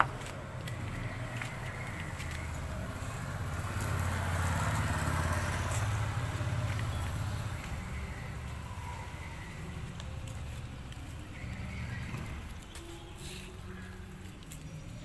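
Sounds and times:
motorcycle engine running: 2.0s - 12.6s.

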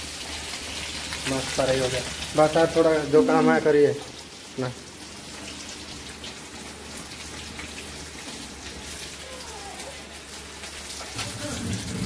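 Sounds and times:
onion skins crackling: 8.1s - 12.0s.

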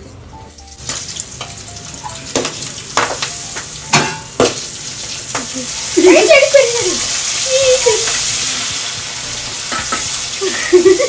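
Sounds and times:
corn frying in hot oil: 0.0s - 11.0s
kernels popping in oil: 0.8s - 8.6s.

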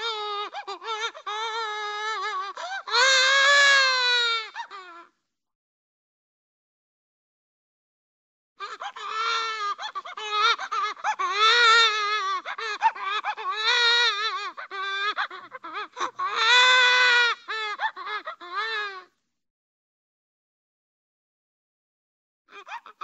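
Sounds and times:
cartoon baby crying: 0.0s - 5.1s, 8.6s - 19.1s, 22.5s - 23.0s.

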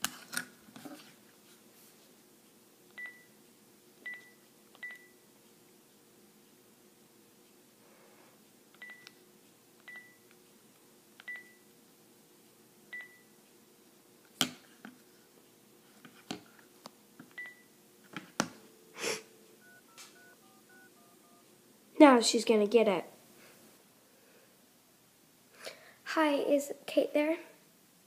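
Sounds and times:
phone keypad beeps: 3.0s - 3.3s, 4.1s - 5.2s, 8.8s - 9.1s, 9.9s - 10.2s, 11.3s - 11.6s, 12.9s - 13.3s, 17.4s - 17.7s, 18.6s - 21.5s.

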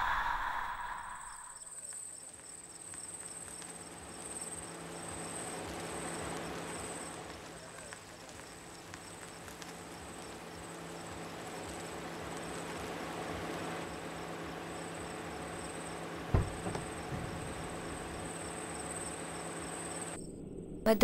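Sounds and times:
crickets chirping: 0.0s - 20.7s
low steady hum: 16.3s - 21.0s
sharp thump: 16.4s - 18.2s.

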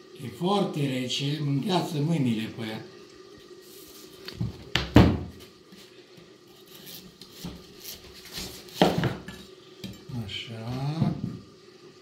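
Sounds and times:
knife cutting and scraping pumpkin: 6.5s - 9.4s.

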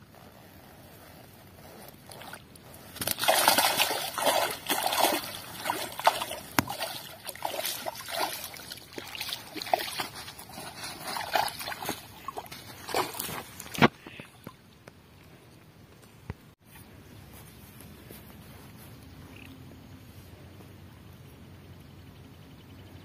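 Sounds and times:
water splashing and sloshing: 3.0s - 14.9s.

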